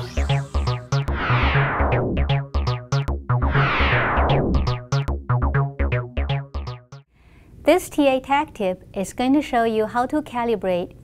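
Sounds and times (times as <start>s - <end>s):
electronic synth music: 0.0s - 7.1s
falling whoosh: 3.4s - 4.9s.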